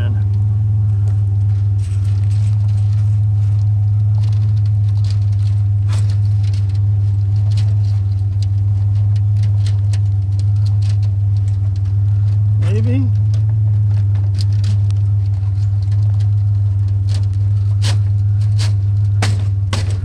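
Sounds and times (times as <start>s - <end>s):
truck engine idling: 0.0s - 20.0s.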